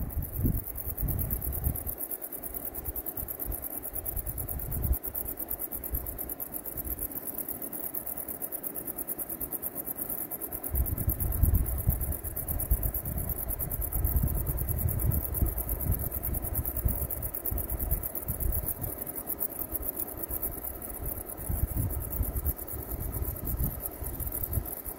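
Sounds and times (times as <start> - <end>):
wind buffeting microphone: 0.0 - 1.9, 10.7 - 19.0, 20.4 - 24.9
insects chirring: 0.0 - 24.9.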